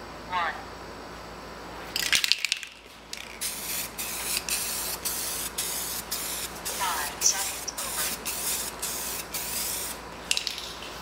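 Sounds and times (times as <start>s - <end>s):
spray hissing: 3.3s - 10.0s.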